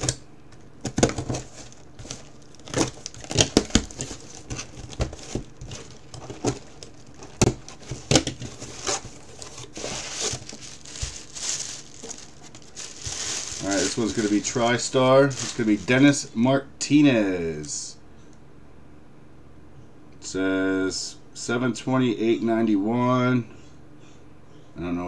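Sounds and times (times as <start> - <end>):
plastic bag crinkling: 0.0 - 16.2.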